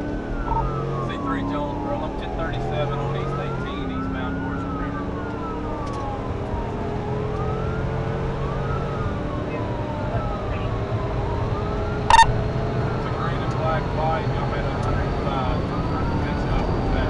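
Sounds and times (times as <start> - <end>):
police siren wailing: 0.0 - 17.0
road noise: 0.0 - 17.0
sharp burst of siren tone: 12.1 - 12.5.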